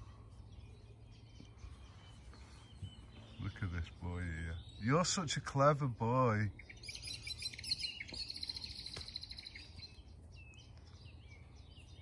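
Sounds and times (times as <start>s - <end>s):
songbirds singing: 0.0s - 12.0s.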